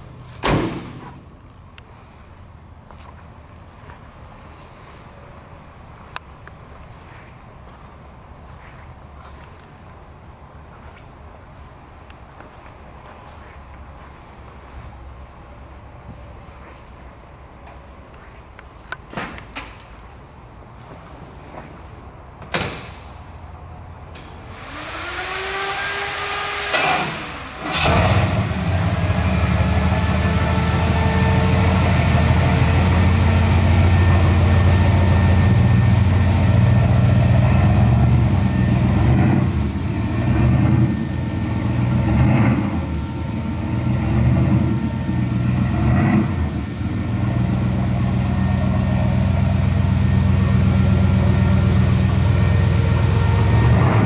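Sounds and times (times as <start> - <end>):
truck engine idling and revving: 0.0 - 19.1, 22.9 - 54.0
door shutting: 0.4 - 1.2, 22.4 - 23.1.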